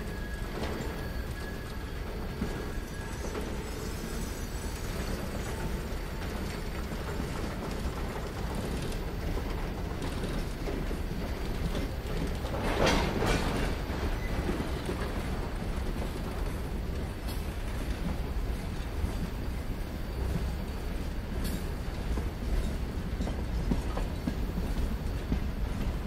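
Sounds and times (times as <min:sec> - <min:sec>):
freight train rumbling and clattering: 0:00.0 - 0:26.0.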